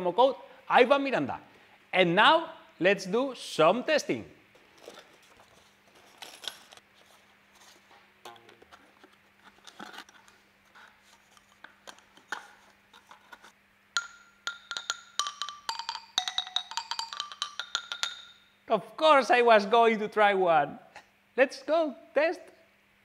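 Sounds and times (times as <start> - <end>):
small parts clicking: 14.0 - 18.3
wooden toy xylophone notes: 14.0 - 18.5.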